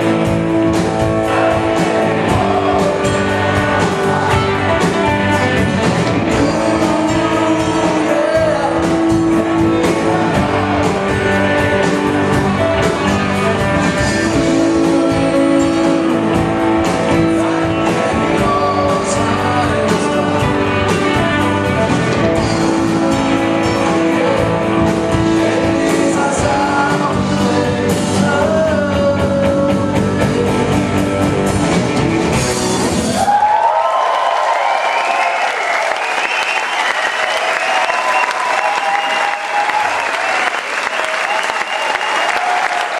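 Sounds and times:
crowd cheering and applauding: 0.0s - 27.2s, 31.9s - 42.9s
man singing lead: 0.0s - 31.5s
live rock band playing: 0.0s - 33.8s.

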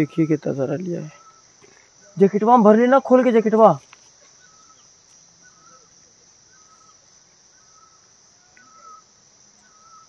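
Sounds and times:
high-pitched insect drone: 0.0s - 10.0s
bird repeating short call: 7.6s - 10.0s.

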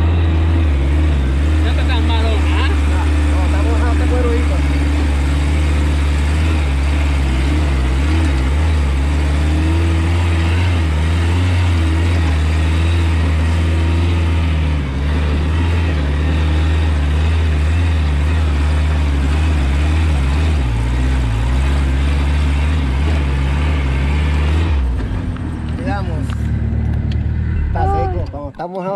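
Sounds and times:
buggy engine droning: 0.0s - 28.9s.

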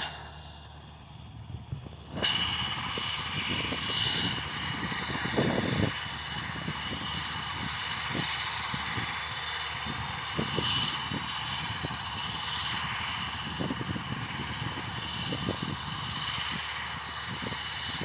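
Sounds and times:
turboprop engine whine and rumble: 0.0s - 18.0s.

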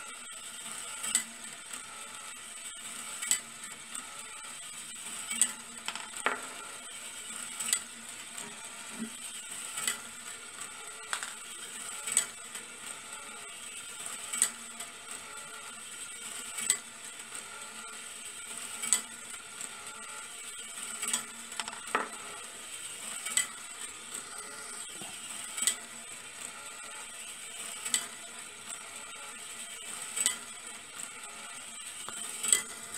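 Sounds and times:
small electric motor whirring: 0.0s - 32.9s
marbles rolling on metal rails: 5.0s - 8.0s, 11.0s - 12.4s, 20.8s - 24.2s, 31.7s - 32.8s.

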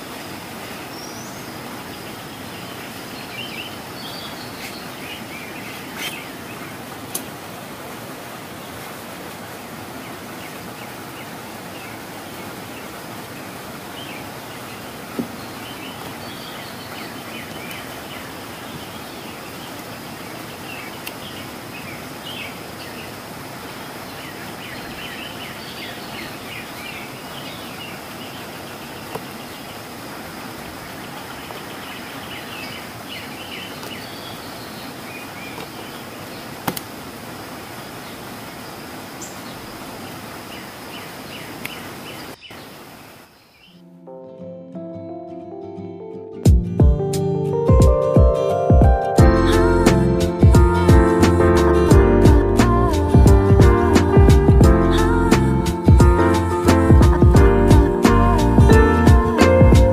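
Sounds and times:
steady hiss: 48.4s - 59.9s.

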